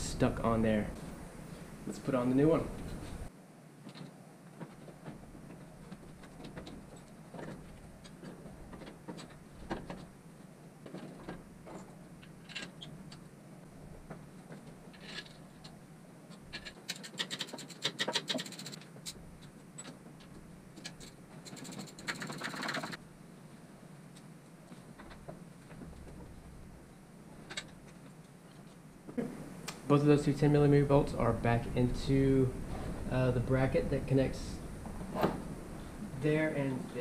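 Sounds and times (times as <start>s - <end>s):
tools clicking and scraping on metal: 14.9s - 23.0s.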